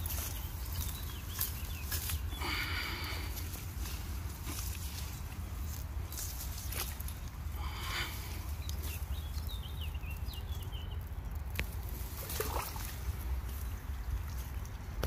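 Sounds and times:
water splashing: 11.1s - 15.0s.

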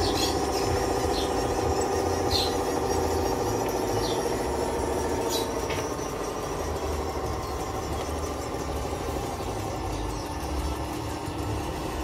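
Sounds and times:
model bulldozer running: 0.0s - 12.0s.

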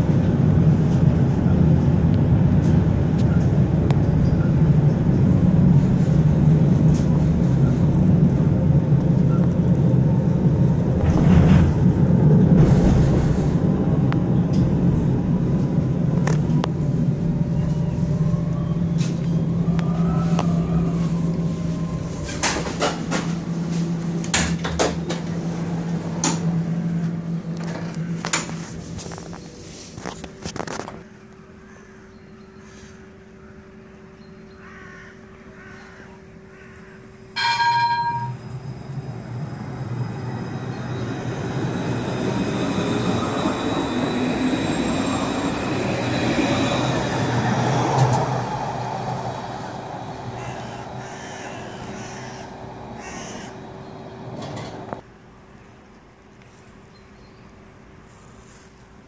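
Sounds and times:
tram chime: 0.0s - 28.3s, 37.0s - 55.0s
tram running rumble and motor whine: 0.0s - 58.0s.

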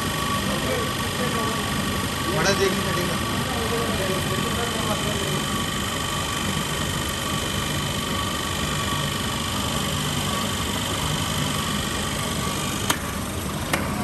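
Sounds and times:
machine whirring with hum: 0.0s - 14.0s.

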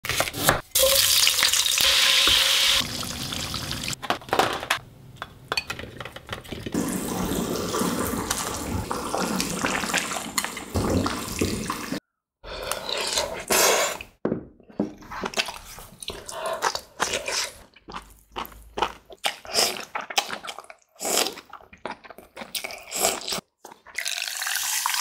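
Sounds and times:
running tap water: 0.8s - 4.0s, 6.7s - 12.0s.

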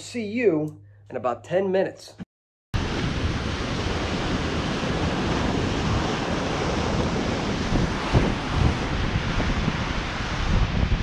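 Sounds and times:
ocean surf breaking: 2.8s - 11.0s
wind buffeting microphone: 2.8s - 11.0s.

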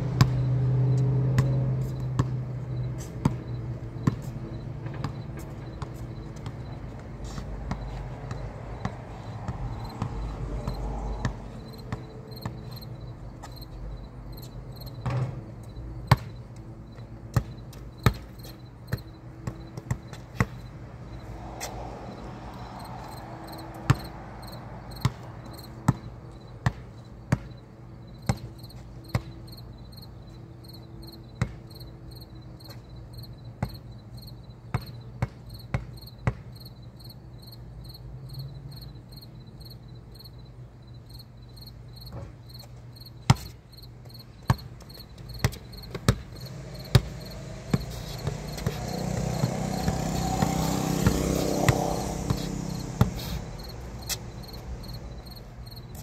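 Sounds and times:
basketball bouncing on concrete: 0.0s - 13.8s, 14.4s - 15.4s, 16.1s - 16.4s, 17.0s - 20.8s, 21.4s - 27.6s, 28.2s - 29.4s, 31.4s - 31.6s, 33.6s - 33.9s, 34.7s - 36.7s, 42.0s - 56.0s
vehicle passing: 0.0s - 14.9s, 20.7s - 26.3s, 45.6s - 56.0s
insects chirping: 0.4s - 25.8s, 35.5s - 56.0s.

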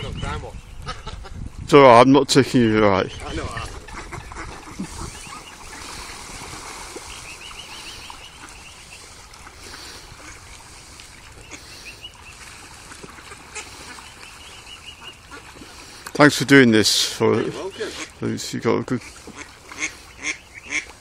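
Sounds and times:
high peeping bird calls: 3.0s - 6.2s, 6.9s - 10.0s, 11.3s - 12.6s, 13.6s - 16.0s, 19.8s - 20.9s
light water splashing: 3.3s - 21.0s.

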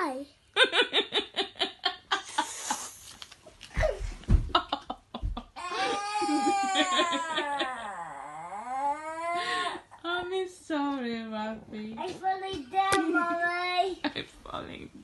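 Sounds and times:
dull thumps on carpet: 3.8s - 4.6s
child giggling: 3.8s - 8.2s
child moaning: 5.6s - 9.9s.

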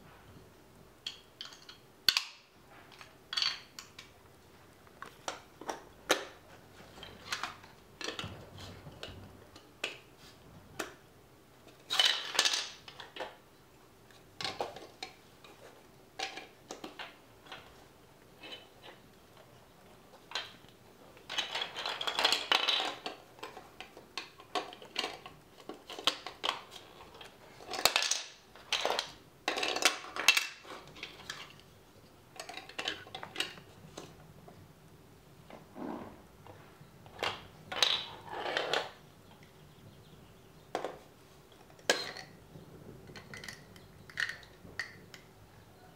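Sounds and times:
plastic bricks clattering on wood: 11.7s - 13.4s, 20.2s - 31.6s, 32.4s - 34.1s, 37.1s - 39.0s, 43.0s - 45.3s.

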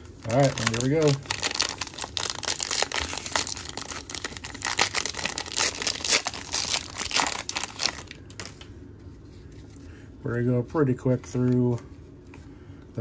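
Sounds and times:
wrapper tearing and crinkling: 0.2s - 8.2s.

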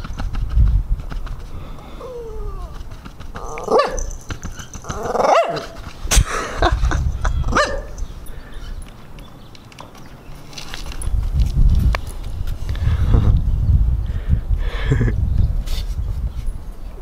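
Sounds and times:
dog barking and growling: 3.4s - 5.8s, 7.5s - 8.0s.

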